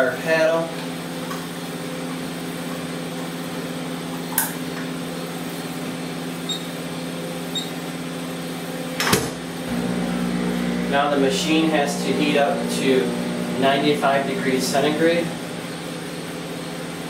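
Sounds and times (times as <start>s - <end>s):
analyser humming: 9.6s - 17.0s.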